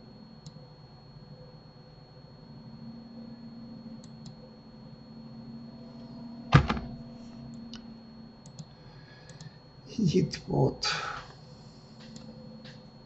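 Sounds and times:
low steady hum: 0.0s - 13.0s
loud short thump: 6.5s - 7.0s.

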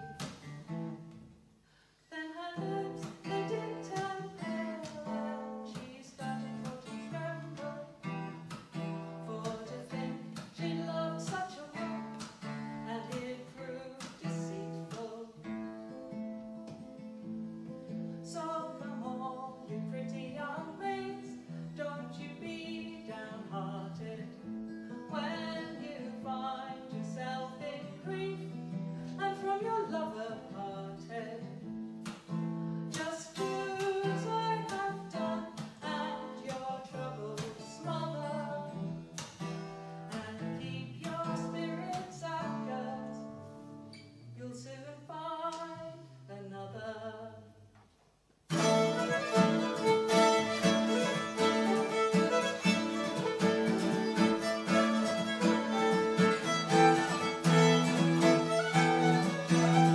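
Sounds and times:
acoustic guitar strumming: 0.0s - 1.2s, 2.6s - 18.4s, 48.5s - 59.9s
woman singing folk song: 1.7s - 47.6s, 48.5s - 59.9s.

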